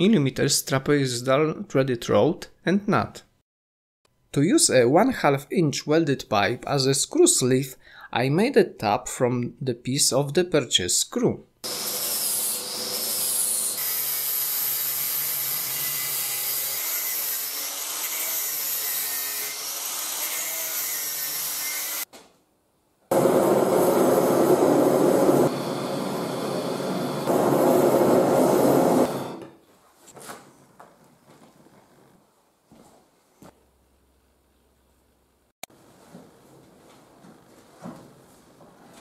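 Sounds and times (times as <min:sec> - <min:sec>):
angle grinder grinding steel: 0:11.7 - 0:22.1
steady rushing noise: 0:23.1 - 0:29.3.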